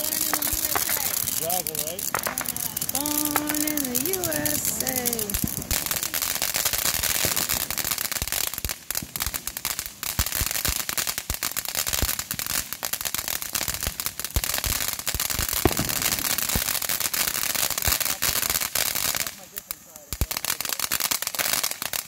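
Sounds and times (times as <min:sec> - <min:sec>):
fireworks crackling and popping: 0:00.0 - 0:22.0
fireworks spraying sparks hiss: 0:00.0 - 0:22.0
loud firework pop: 0:15.4 - 0:16.7.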